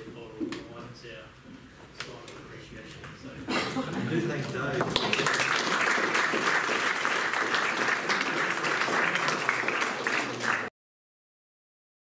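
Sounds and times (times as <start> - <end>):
audience applauding: 4.8 - 10.7.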